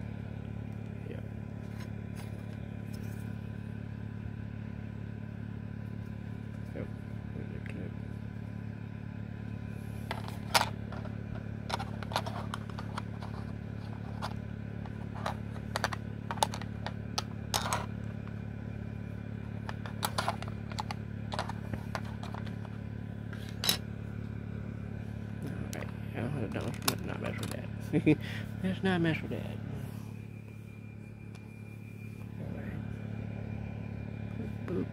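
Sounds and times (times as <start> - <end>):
low hum: 0.0 - 34.9.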